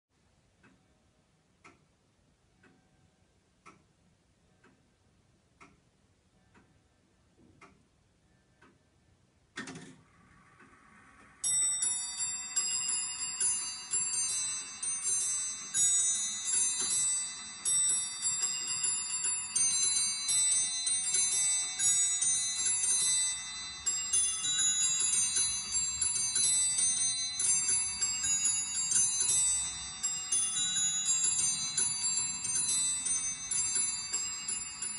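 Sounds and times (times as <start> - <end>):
clock ticking softly: 0.2 - 34.9
clock mechanism clunk and whir: 9.6 - 11.9
minuet played on bells: 11.3 - 34.9.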